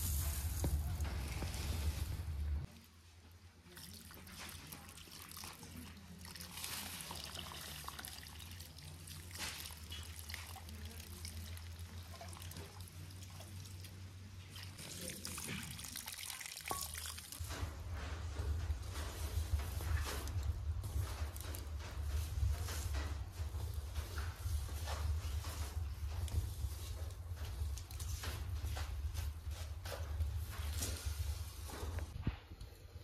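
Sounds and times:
water tipped through colander: 0:03.6 - 0:17.5
water splashing into metal bowl: 0:03.8 - 0:17.4.

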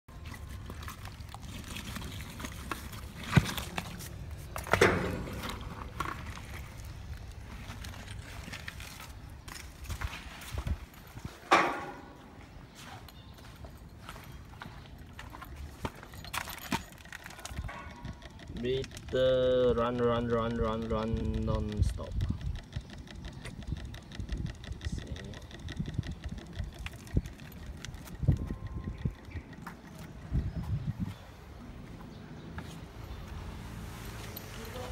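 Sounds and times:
rapid clicks: 0:16.8 - 0:30.3
small machine running: 0:17.2 - 0:29.6.

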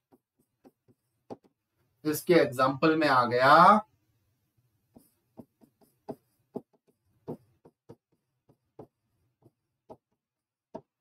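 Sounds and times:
writing tool tapping on board: 0:00.0 - 0:01.6, 0:04.9 - 0:11.0.

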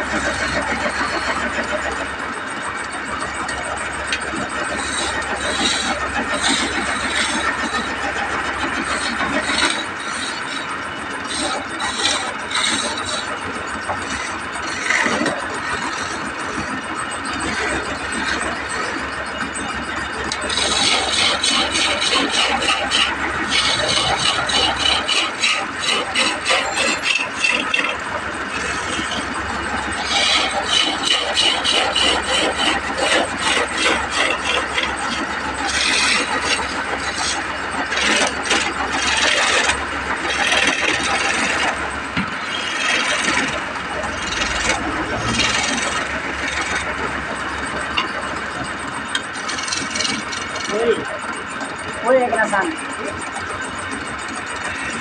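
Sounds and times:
wood lathe spinning: 0:00.0 - 0:55.0
chisel scraping wood: 0:09.0 - 0:10.6, 0:11.2 - 0:13.3, 0:20.3 - 0:43.6, 0:44.2 - 0:46.9, 0:49.1 - 0:50.8.

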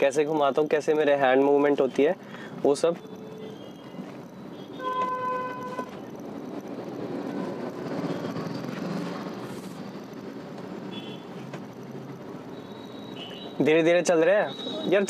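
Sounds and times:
street traffic noise: 0:00.0 - 0:15.0
vehicle horn blast: 0:04.7 - 0:05.9.

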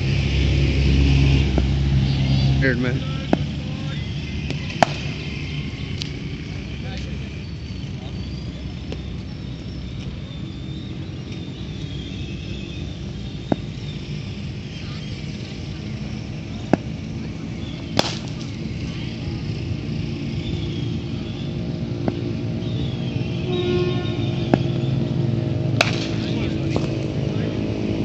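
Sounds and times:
low outdoor rumble: 0:00.0 - 0:28.0
cricket bat striking ball: 0:01.5 - 0:01.8, 0:03.2 - 0:05.4, 0:13.3 - 0:13.8, 0:16.5 - 0:18.7, 0:22.0 - 0:22.4, 0:24.2 - 0:25.0, 0:25.7 - 0:27.0.

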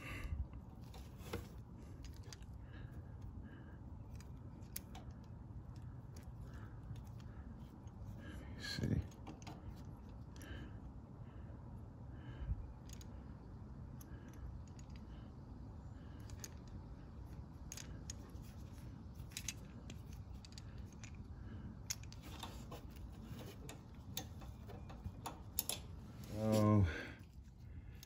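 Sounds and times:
metal parts clicking: 0:17.6 - 0:21.2, 0:21.8 - 0:26.6
low voice hum: 0:26.2 - 0:27.2.

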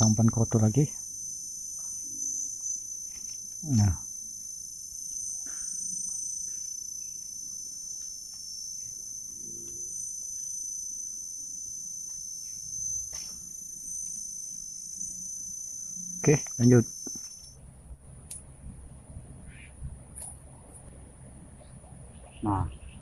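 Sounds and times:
insects chorus: 0:00.0 - 0:23.0.

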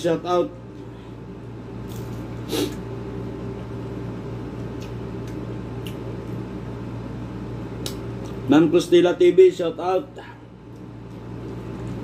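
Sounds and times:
steady low hum: 0:00.0 - 0:12.0
short hummed vocal sound: 0:02.4 - 0:02.9.

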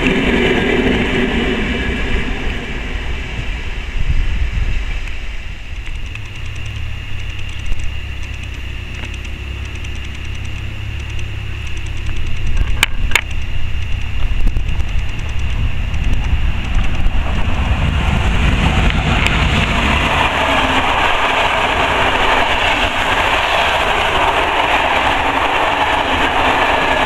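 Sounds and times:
approaching train: 0:00.0 - 0:27.0
wind rumbling on microphone: 0:00.0 - 0:27.0
sharp clicks: 0:05.8 - 0:17.2.

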